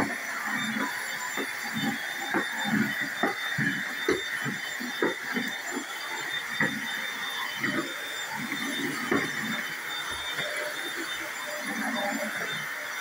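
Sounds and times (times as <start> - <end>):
vacuum cleaner motor whine: 0.0 - 13.0.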